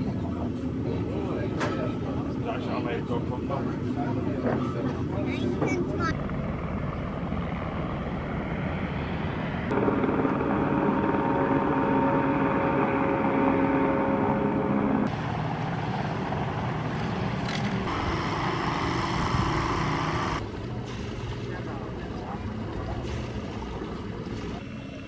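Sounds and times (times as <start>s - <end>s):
boat engine humming: 0.0s - 25.0s
water noise: 5.0s - 25.0s.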